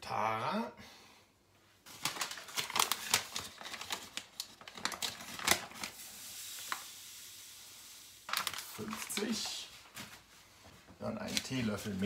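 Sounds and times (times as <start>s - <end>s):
sugar crackling and rustling: 1.8s - 12.0s
faint steady hiss: 3.0s - 12.0s.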